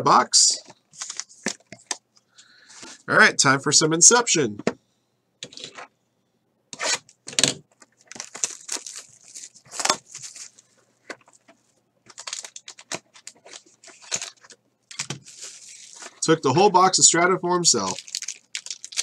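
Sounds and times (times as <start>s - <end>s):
plastic wrapper tearing and crinkling: 7.8s - 11.4s, 12.1s - 16.2s, 17.8s - 19.0s.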